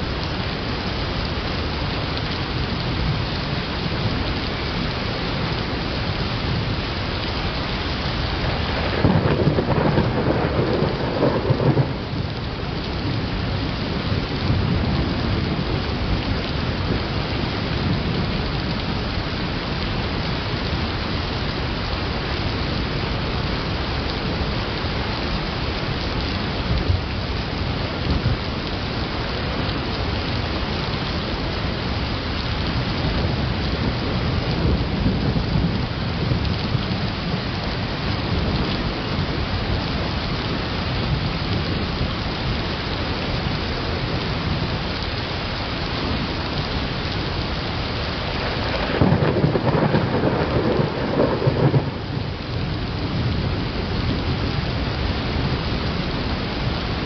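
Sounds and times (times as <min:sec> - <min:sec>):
rain hiss: 0:00.0 - 0:57.0
thunder rumbling: 0:07.9 - 0:18.9, 0:32.6 - 0:42.1, 0:47.4 - 0:56.9.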